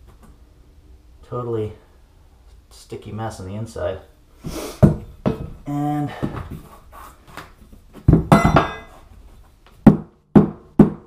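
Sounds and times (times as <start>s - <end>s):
metal tool clattering on wood: 8.3s - 9.0s.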